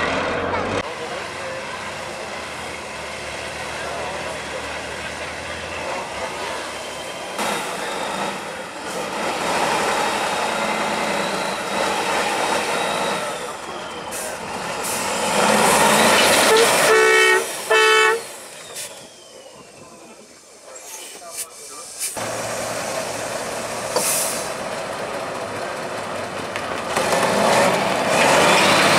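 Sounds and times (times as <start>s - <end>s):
truck engine running under load: 0.0s - 16.9s, 21.5s - 28.9s
loud horn blasts: 15.8s - 18.3s.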